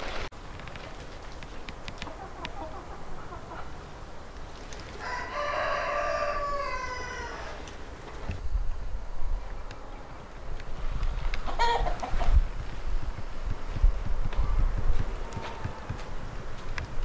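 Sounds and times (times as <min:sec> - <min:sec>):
hens clucking: 0:01.8 - 0:07.8, 0:11.0 - 0:12.7
rooster crowing: 0:05.0 - 0:07.7.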